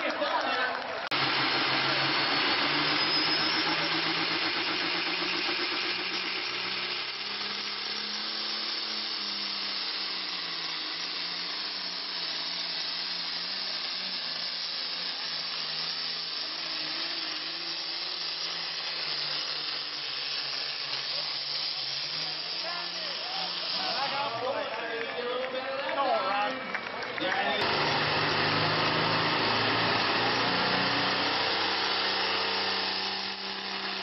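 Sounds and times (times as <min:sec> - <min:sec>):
tractor diesel engine at full power: 0:01.0 - 0:25.1, 0:27.2 - 0:34.0
turbo hiss: 0:01.2 - 0:24.5.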